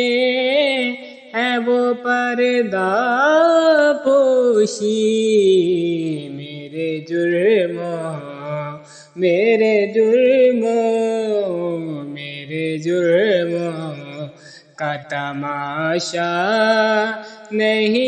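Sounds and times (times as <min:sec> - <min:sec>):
man singing: 0:00.0 - 0:18.0.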